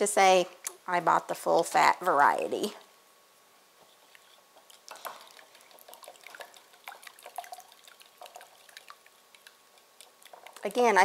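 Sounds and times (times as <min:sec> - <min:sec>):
wet liquid sounds: 0:04.1 - 0:11.0
whisk clicking against glass bowl: 0:04.8 - 0:11.0.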